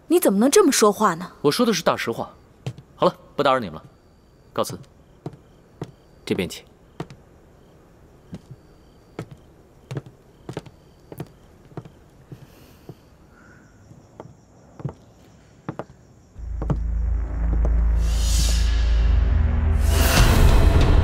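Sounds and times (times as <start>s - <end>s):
footsteps on a hard floor: 2.7s - 2.9s, 4.7s - 6.0s, 7.0s - 7.2s, 8.3s - 8.6s, 9.2s - 13.0s, 14.2s - 15.0s, 15.7s - 16.9s, 17.5s - 17.8s
low ominous soundtrack music: 16.4s - 21.0s.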